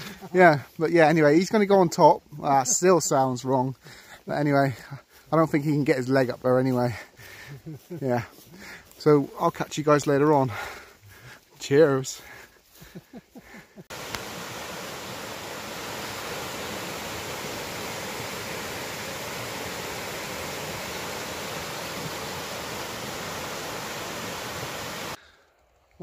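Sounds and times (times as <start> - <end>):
river rushing over rocks: 13.9 - 25.2.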